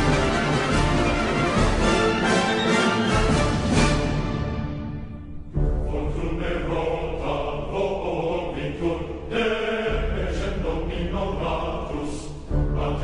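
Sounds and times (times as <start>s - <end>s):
choir chanting: 5.7s - 13.0s.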